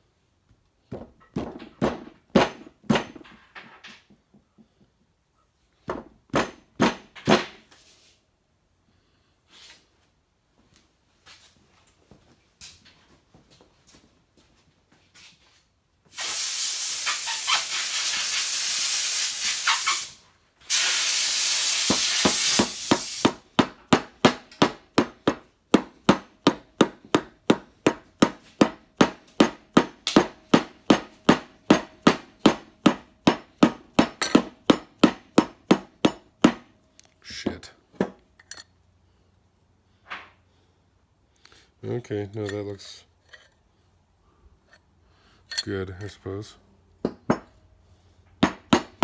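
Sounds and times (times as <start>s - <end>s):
long steady hisses: 16.1s - 23.3s.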